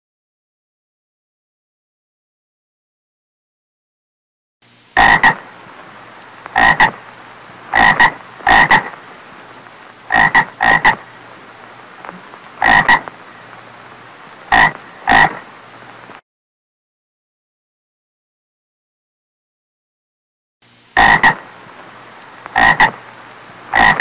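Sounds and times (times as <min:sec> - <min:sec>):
low background hiss: 0:04.6 - 0:16.2, 0:20.6 - 0:24.0
frog croaking: 0:05.0 - 0:05.5, 0:06.4 - 0:07.0, 0:07.7 - 0:09.0, 0:10.0 - 0:11.2, 0:12.0 - 0:13.5, 0:14.5 - 0:15.5, 0:21.0 - 0:21.5, 0:22.4 - 0:23.0, 0:23.7 - 0:24.0.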